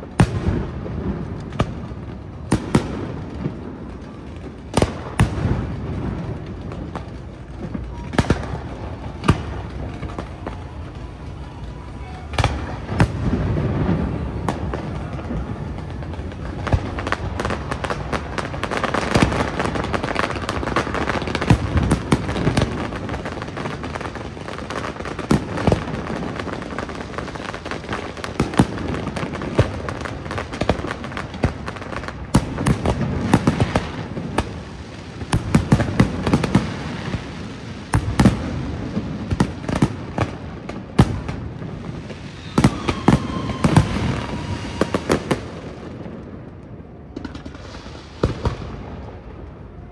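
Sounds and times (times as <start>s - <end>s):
firework crackling: 0.0s - 49.9s
falling firework whistle: 41.9s - 46.0s.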